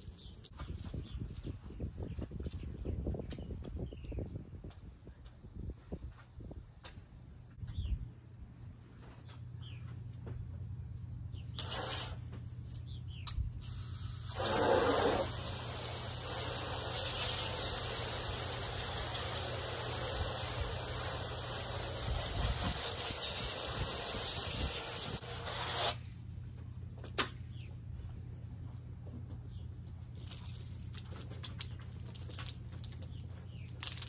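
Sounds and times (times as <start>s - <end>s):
hose spraying water on glass: 11.6s - 12.3s, 13.6s - 26.1s.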